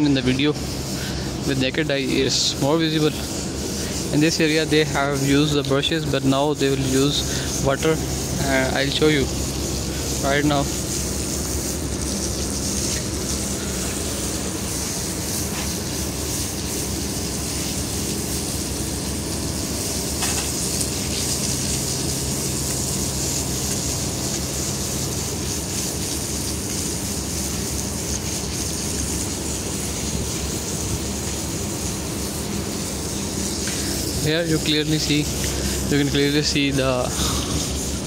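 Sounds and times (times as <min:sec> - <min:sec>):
hose water splashing on concrete: 0:00.0 - 0:38.0
steady rumble: 0:00.0 - 0:38.0.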